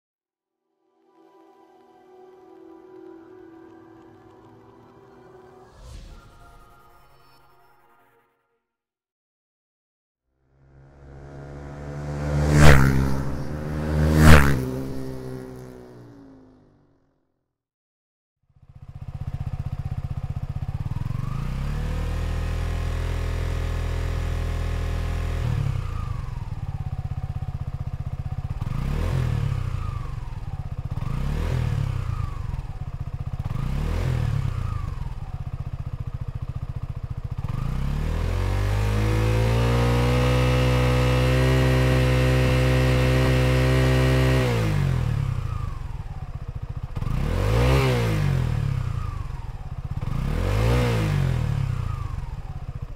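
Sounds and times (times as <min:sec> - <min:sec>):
motorcycle engine revving: 0:10.4 - 0:17.0, 0:18.5 - 0:52.9.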